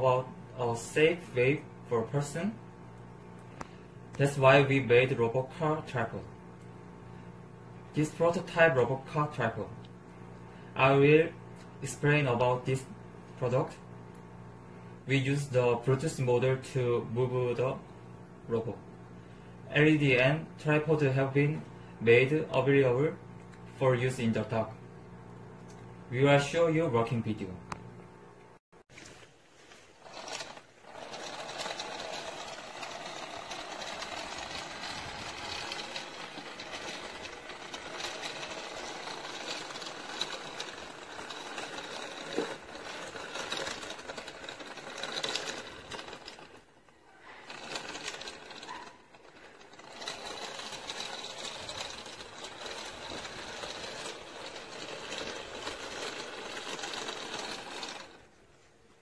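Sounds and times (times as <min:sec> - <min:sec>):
gear motors whirring: 0:29.7 - 0:58.4.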